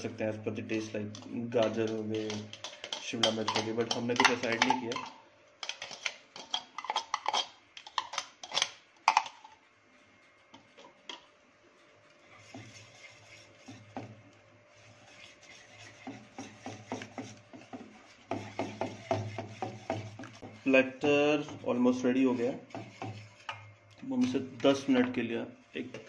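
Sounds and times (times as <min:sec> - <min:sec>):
wire whisk stirring batter: 0:00.0 - 0:25.9
metal spoon clinking on bowls: 0:01.2 - 0:09.3.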